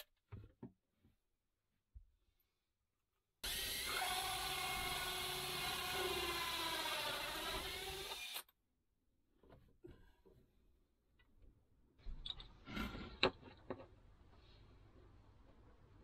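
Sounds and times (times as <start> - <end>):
cordless drill cutting wood: 3.4 - 8.5.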